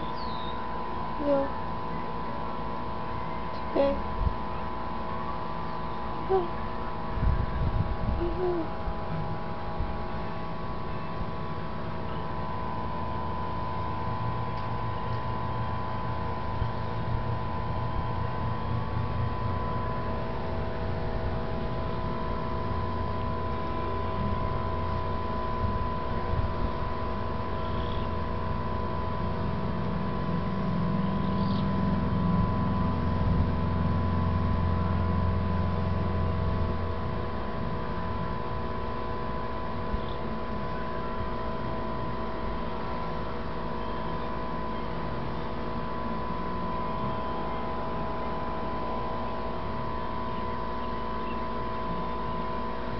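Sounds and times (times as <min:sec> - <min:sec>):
motor humming: 0:00.0 - 0:52.9.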